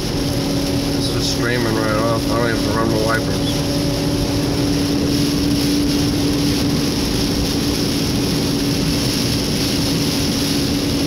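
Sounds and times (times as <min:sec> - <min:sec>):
constant low hum: 0:00.0 - 0:11.0
heavy rain on car: 0:00.0 - 0:11.0
road and tyre noise: 0:00.0 - 0:11.0.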